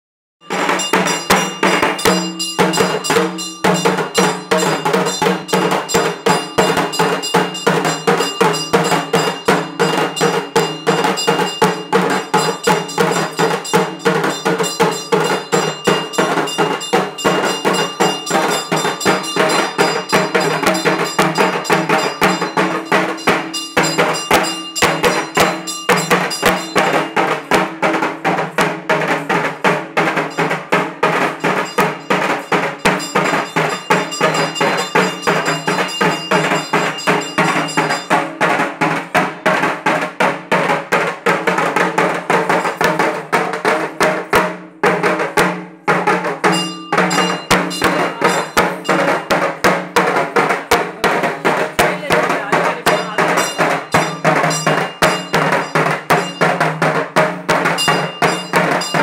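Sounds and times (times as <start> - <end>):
drum and metallic strikes: 0.4 - 59.0.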